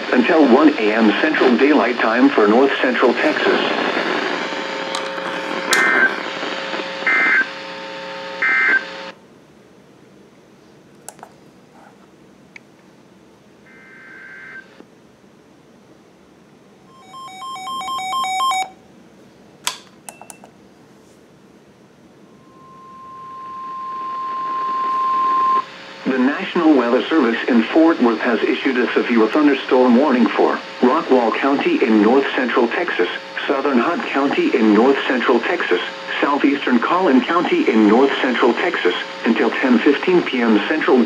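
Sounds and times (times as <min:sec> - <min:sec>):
radio static: 0:00.0 - 0:09.1, 0:22.4 - 0:41.0
steady warning alarm tone: 0:16.9 - 0:18.8, 0:22.2 - 0:26.8
data bursts: 0:22.3 - 0:26.8
touch-tone beeps: 0:22.4 - 0:25.6.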